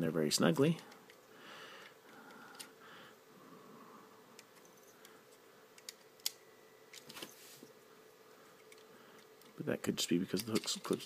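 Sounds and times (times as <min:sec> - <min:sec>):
plastic toy parts clicking: 0:05.8 - 0:07.1, 0:10.3 - 0:11.0.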